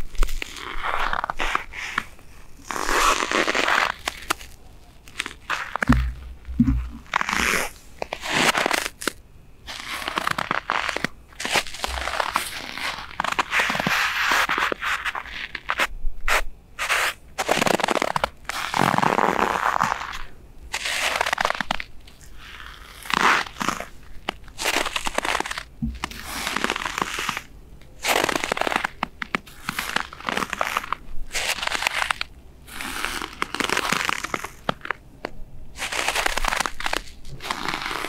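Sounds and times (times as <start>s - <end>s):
boots crunching in snow: 0.4s - 9.0s, 24.6s - 27.4s
low thumps: 5.8s - 7.4s, 25.8s - 26.2s.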